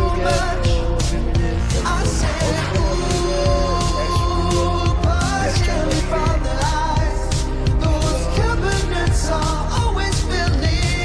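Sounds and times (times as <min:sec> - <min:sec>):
upbeat pop music: 0:00.0 - 0:11.0.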